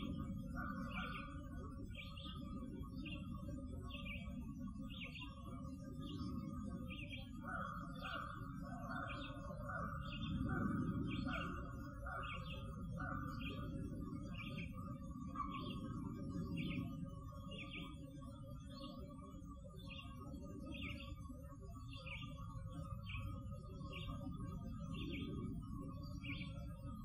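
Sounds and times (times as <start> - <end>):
bird chirping: 0.0 - 19.1, 19.8 - 27.0.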